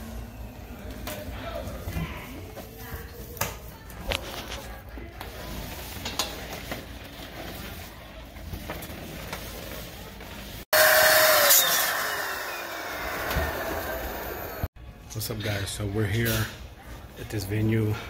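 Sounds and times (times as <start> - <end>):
electric blower motor running: 10.7 - 14.7.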